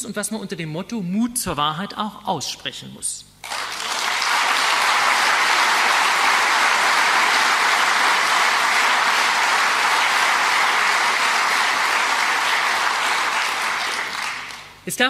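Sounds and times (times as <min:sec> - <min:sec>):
audience applause: 0:03.4 - 0:14.8.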